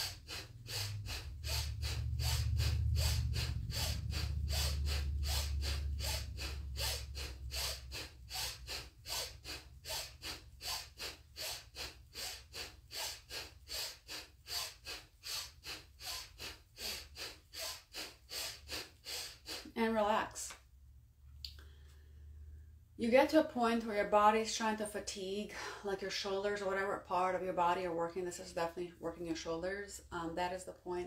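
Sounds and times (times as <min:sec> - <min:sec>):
low rumble: 0:00.0 - 0:08.3
rapid breathing through the nose: 0:00.0 - 0:19.8, 0:21.6 - 0:22.8.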